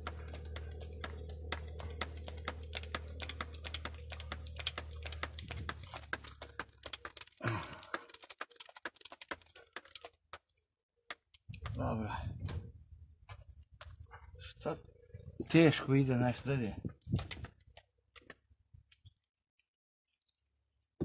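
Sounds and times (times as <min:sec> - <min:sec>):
steady low hum: 0:00.0 - 0:06.9
grease gun clicking and rattling: 0:00.0 - 0:10.5.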